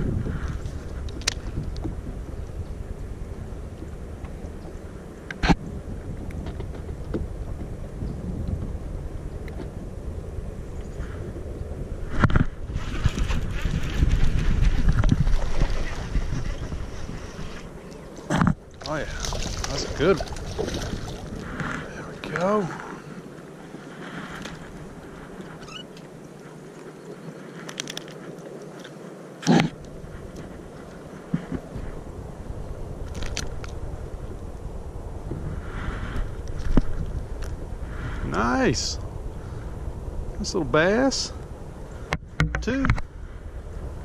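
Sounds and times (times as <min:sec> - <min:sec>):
wind buffeting microphone: 0:00.0 - 0:26.7, 0:29.6 - 0:44.0
steady background hiss: 0:16.9 - 0:44.0.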